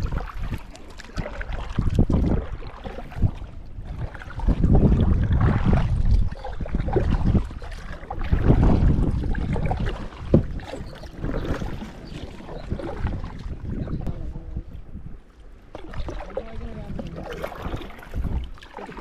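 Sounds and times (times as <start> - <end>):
water sloshing: 0.0 - 19.0
wind rumbling on microphone: 0.0 - 19.0.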